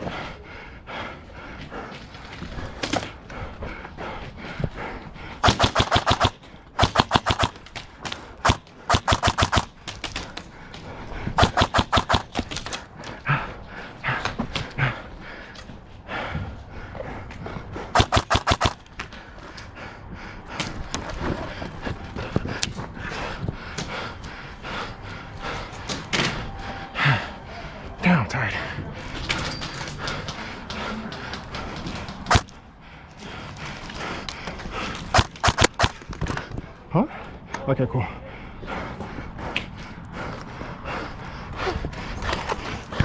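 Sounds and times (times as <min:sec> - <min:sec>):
airsoft rifle bursts: 0:08.4 - 0:09.8.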